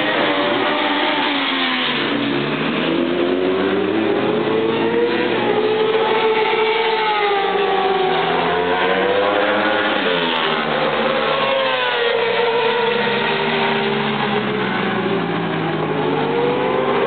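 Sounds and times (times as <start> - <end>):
racing car engine: 0.0 - 17.0.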